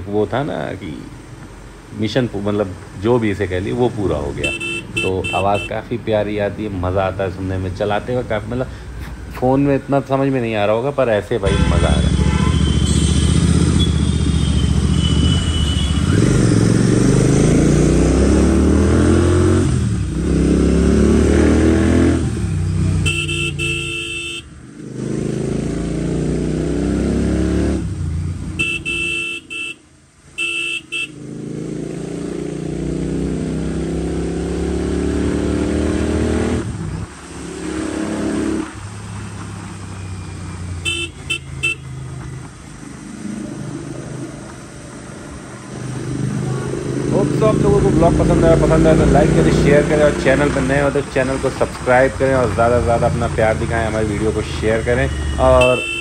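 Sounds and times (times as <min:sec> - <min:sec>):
vehicle horn honking: 0:04.4 - 0:05.8, 0:11.5 - 0:16.1, 0:23.0 - 0:24.5, 0:28.6 - 0:29.8, 0:30.4 - 0:31.2, 0:40.8 - 0:42.0, 0:55.4 - 0:56.0
motorcycle engine revving: 0:11.5 - 0:29.2, 0:31.0 - 0:56.0.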